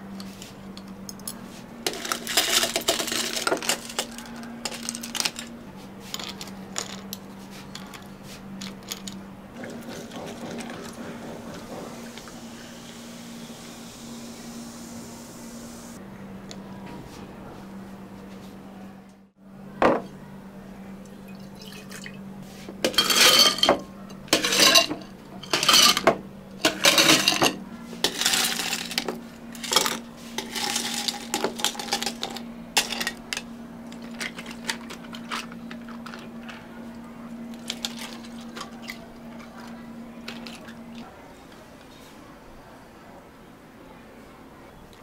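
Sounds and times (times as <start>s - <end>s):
low machine hum: 0.0s - 45.0s
cups and utensils clattering: 1.9s - 12.1s, 22.8s - 36.6s.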